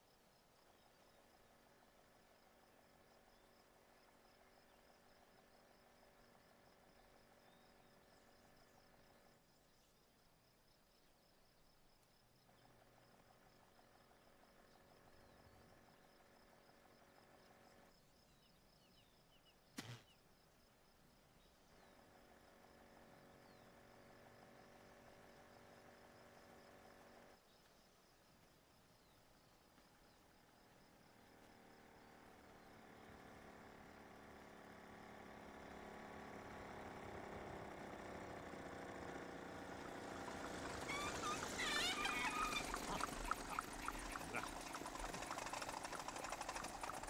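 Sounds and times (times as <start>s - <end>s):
moped engine running: 31.1s - 47.0s
faint high chirps: 40.2s - 47.0s
squeaky wavering sound: 40.8s - 44.4s.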